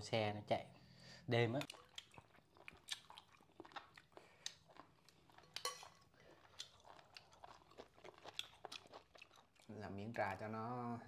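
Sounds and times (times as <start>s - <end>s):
chewing: 1.6s - 10.4s.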